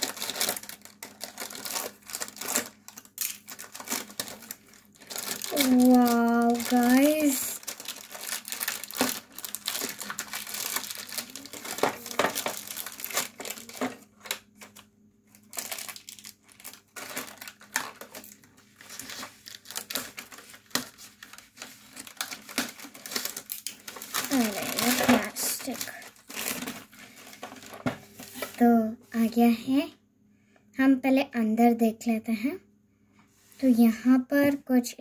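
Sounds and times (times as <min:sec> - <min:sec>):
scissors cutting plastic: 0:00.0 - 0:14.8, 0:15.4 - 0:26.8
plastic wrapping crinkling: 0:00.0 - 0:28.8.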